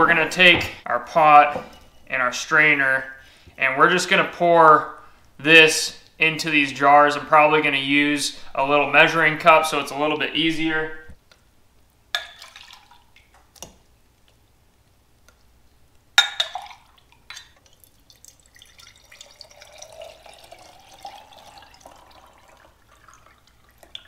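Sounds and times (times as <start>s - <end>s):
glass cup clinking against pot: 16.2s - 17.6s
liquid fat trickling through strainer: 16.5s - 24.0s.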